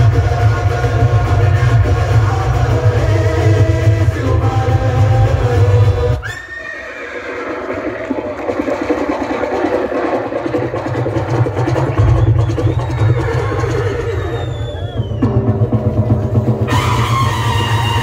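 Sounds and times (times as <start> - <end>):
bass-heavy stage music: 0.0 - 6.2
horse whinny: 6.2 - 9.0, 12.5 - 15.0
fluttering busy noise: 7.4 - 15.0.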